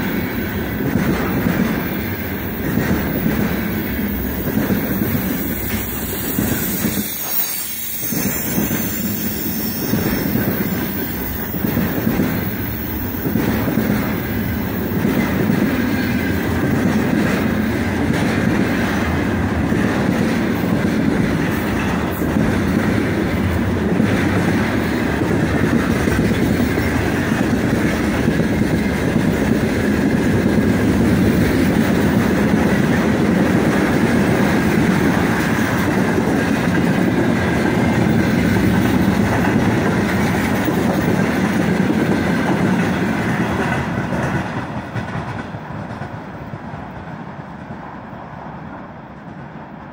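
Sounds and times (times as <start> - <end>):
train wheels on rails: 0.0 - 49.9.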